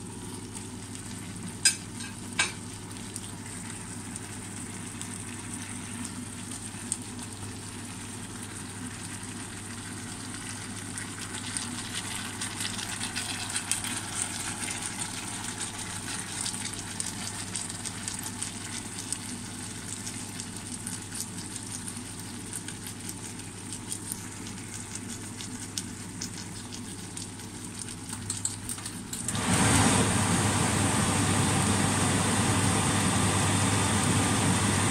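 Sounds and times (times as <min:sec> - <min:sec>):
food sizzling in frying pan: 0:00.0 - 0:26.6.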